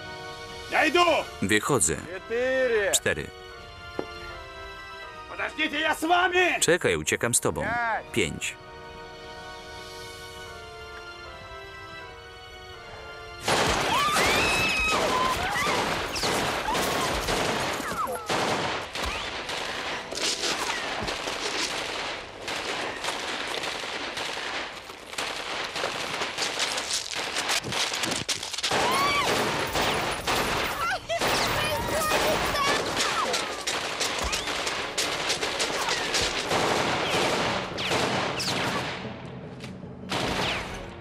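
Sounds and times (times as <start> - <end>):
music: 0.0 - 23.5, 28.7 - 41.0
heavy machine-gun fire: 33.7 - 39.2.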